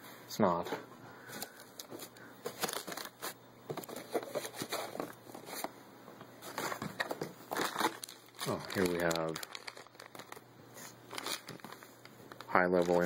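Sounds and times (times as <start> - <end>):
plastic and cardboard crinkling: 1.3 - 5.7, 6.4 - 13.0.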